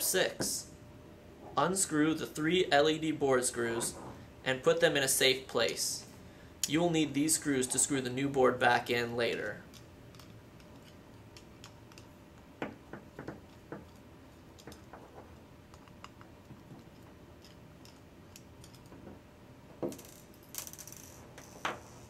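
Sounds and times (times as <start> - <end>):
screwdriver clicks and taps: 14.6 - 14.9.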